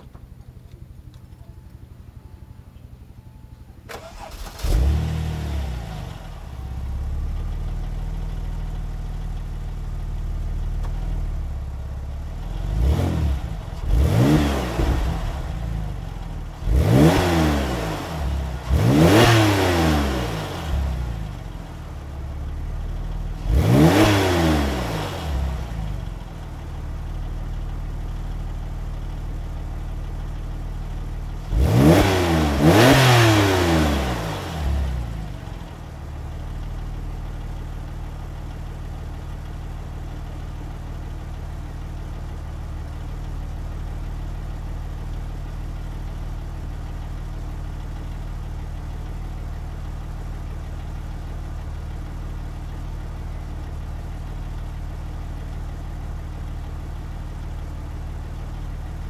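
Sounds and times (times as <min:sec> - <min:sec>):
car engine starting and idling: 0:00.0 - 0:59.0
engine revving: 0:03.9 - 0:06.4, 0:12.4 - 0:21.4, 0:23.3 - 0:26.0, 0:31.4 - 0:35.4.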